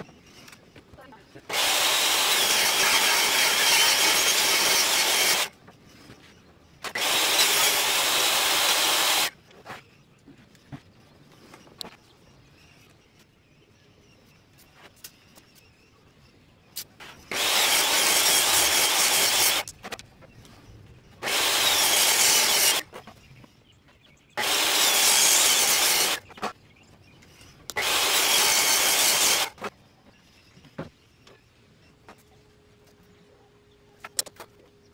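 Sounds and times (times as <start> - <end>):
table saw cutting plywood: 1.5 - 5.5, 6.9 - 9.3, 17.3 - 19.7, 21.2 - 22.9, 24.4 - 26.3, 27.7 - 29.7.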